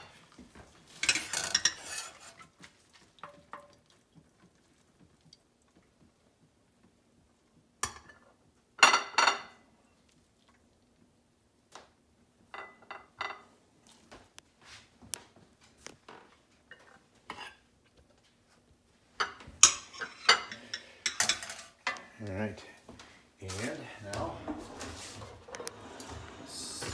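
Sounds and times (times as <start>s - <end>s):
utensil clinking on plates: 1.0s - 2.4s, 8.8s - 9.6s, 12.5s - 13.5s, 19.2s - 22.1s.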